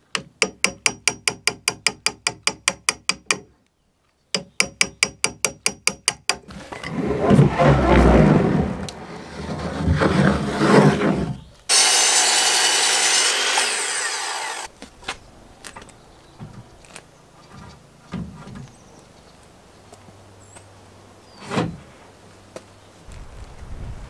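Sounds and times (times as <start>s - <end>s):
power tool whining: 11.7s - 14.7s.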